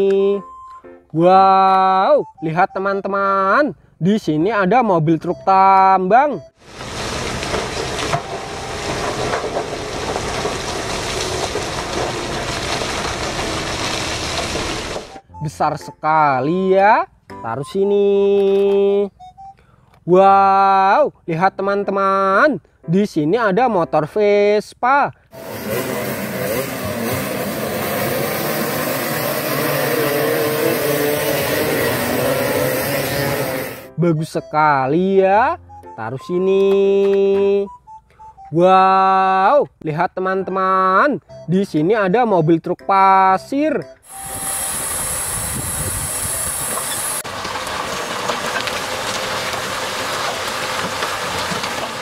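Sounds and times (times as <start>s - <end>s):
rock pouring out: 6.6s - 15.2s, 44.1s - 52.0s
truck engine under load: 6.6s - 15.4s, 25.4s - 33.9s, 44.0s - 52.0s
falling stone knocks: 6.8s - 15.2s, 46.8s - 52.0s
scooter engines revving and idling: 25.4s - 33.9s.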